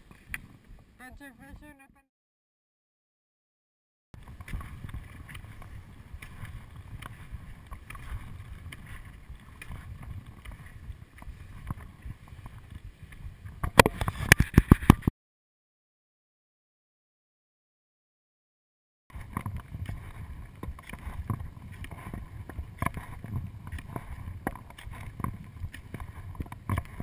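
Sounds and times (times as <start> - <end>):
ski strides clicking and swishing: 4.2 - 15.1, 19.1 - 27.0
wind buffeting microphone: 4.2 - 15.1, 19.1 - 27.0.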